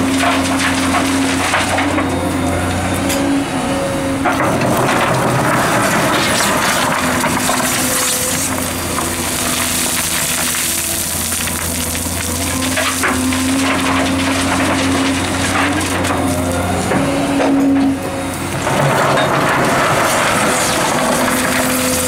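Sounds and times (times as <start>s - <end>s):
excavator diesel engine running: 0.0s - 22.0s
stones rattling into steel bed: 4.3s - 11.8s, 18.6s - 22.0s.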